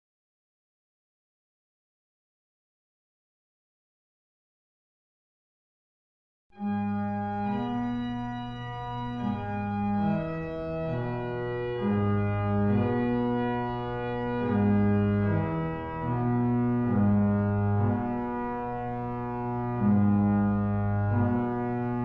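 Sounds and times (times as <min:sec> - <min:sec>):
slow organ chords: 0:06.6 - 0:22.0.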